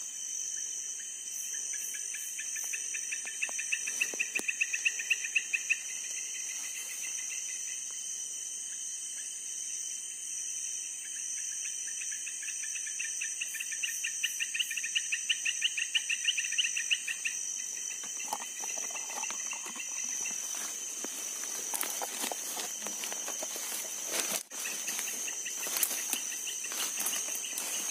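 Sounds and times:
cricket chirping: 0.0s - 27.9s
insect chorus drone: 0.0s - 27.9s
leaves and twigs rustling: 3.3s - 4.6s, 17.8s - 27.9s.

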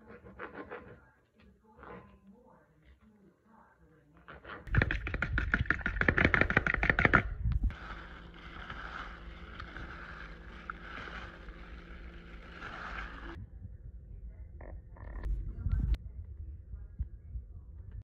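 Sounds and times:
eggs beaten in plastic bowl: 4.7s - 13.4s.

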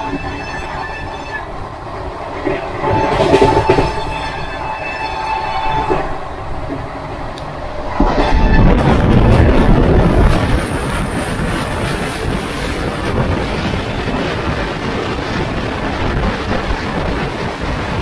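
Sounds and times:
train running noise: 0.0s - 18.0s
wind rushing over microphone: 5.5s - 18.0s.

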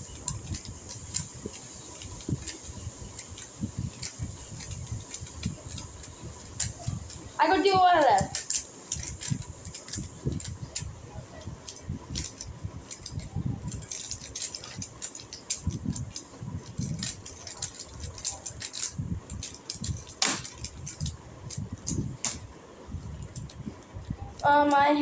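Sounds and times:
sharp clack: 20.2s - 20.7s.

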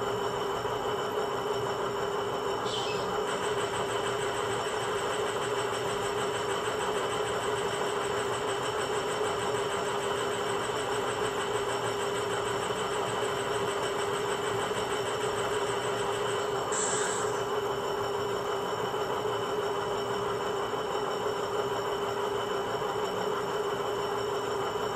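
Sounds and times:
air compressor running: 0.0s - 24.9s
diesel locomotive engine idling: 13.9s - 19.2s.

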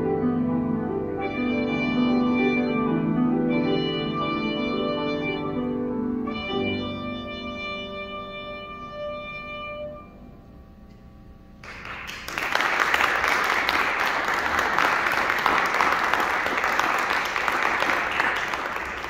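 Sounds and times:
trumpet and piano note: 0.0s - 10.5s
audience applause: 11.6s - 19.0s.

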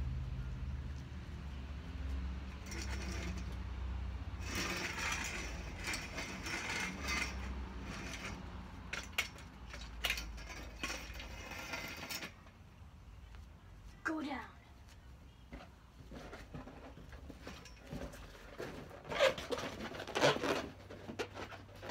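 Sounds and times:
folding chair scraping and rattling: 2.4s - 12.6s, 16.0s - 21.9s.

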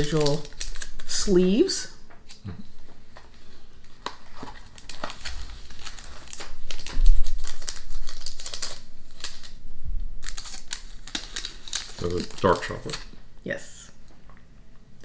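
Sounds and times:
paper sleeves rustling and crinkling: 2.7s - 9.6s, 10.2s - 13.1s.

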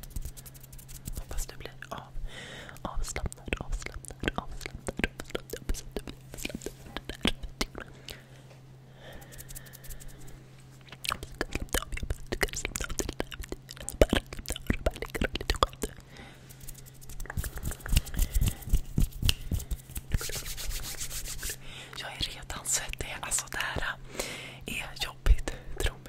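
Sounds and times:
mouth clicks and smacks: 0.0s - 2.0s, 2.8s - 8.2s, 9.2s - 20.8s
low electrical hum: 0.0s - 26.0s.

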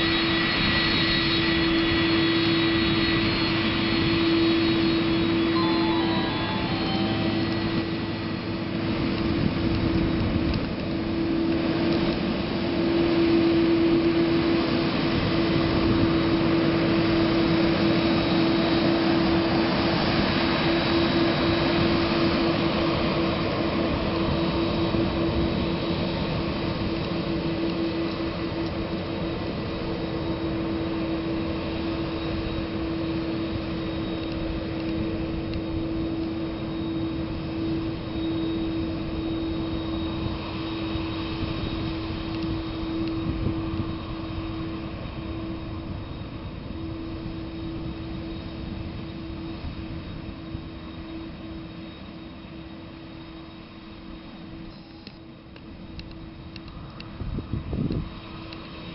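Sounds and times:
jet engines rumbling: 0.0s - 58.9s.

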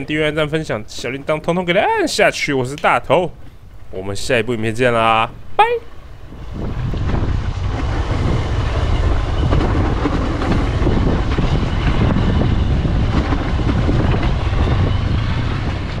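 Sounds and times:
dirt bike engine rumble: 5.4s - 16.0s.

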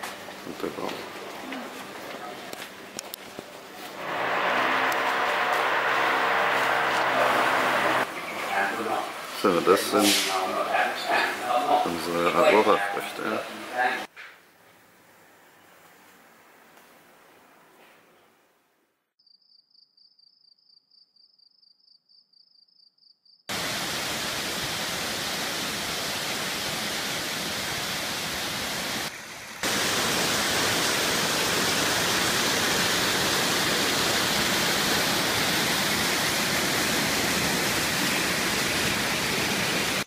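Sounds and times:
water rushing over waterfall: 4.0s - 8.1s, 23.5s - 40.0s.

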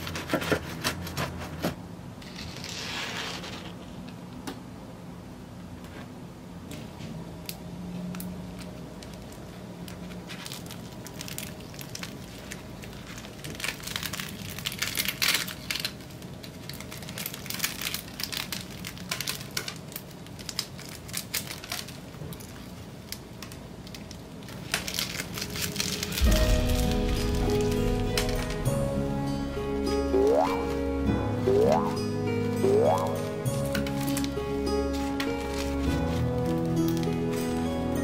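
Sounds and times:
bread crust crackling: 9.2s - 22.7s.

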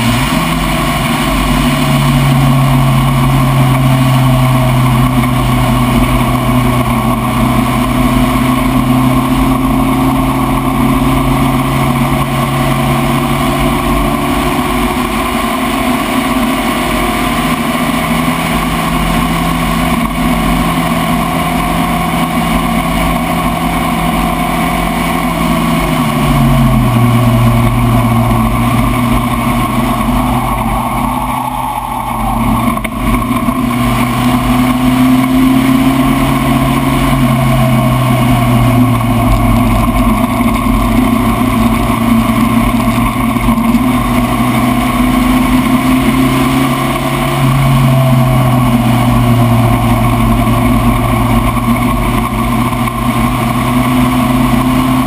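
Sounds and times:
race car engine running hard: 0.0s - 55.0s.

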